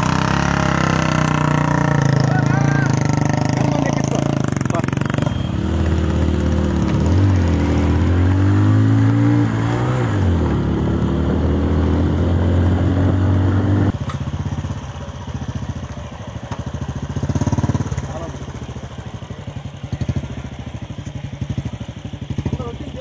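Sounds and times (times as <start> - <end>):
motorcycle engine idling: 0.0 - 8.1, 13.9 - 23.0
motorcycle engine revving: 0.0 - 23.0.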